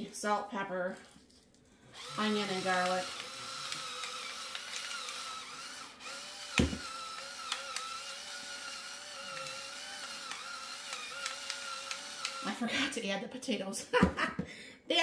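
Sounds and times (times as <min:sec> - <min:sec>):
electric spice grinder whining: 0:02.0 - 0:12.6.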